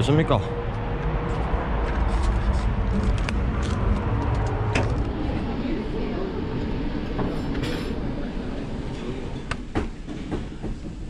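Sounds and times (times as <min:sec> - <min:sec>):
restaurant background rumble: 0:02.7 - 0:11.0.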